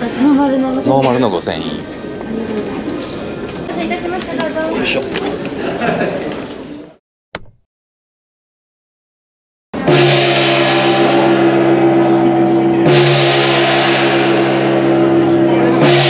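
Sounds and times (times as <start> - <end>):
hand-held gong ringing: 9.8 - 16.0.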